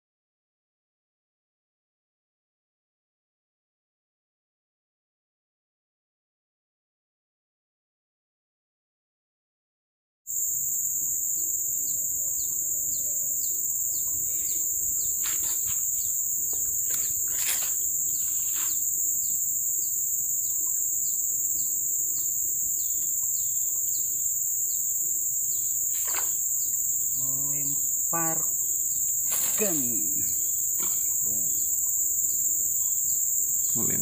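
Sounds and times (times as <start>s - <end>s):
insect drone: 10.3s - 34.0s
bird chirping: 11.2s - 34.0s.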